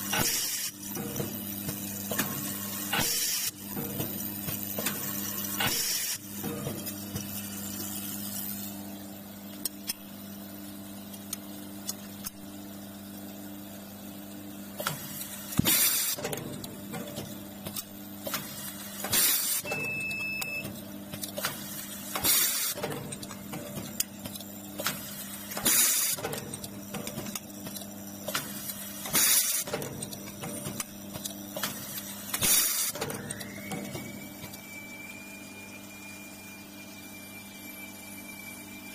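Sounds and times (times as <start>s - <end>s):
pneumatic press hissing and clicking: 0.0s - 7.3s, 14.8s - 19.9s, 21.1s - 34.6s
vibratory bowl feeder humming: 33.0s - 38.9s.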